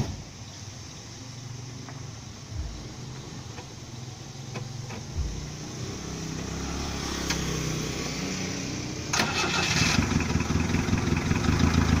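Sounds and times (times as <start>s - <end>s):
diesel engine idling: 0.3s - 6.5s, 8.7s - 12.0s.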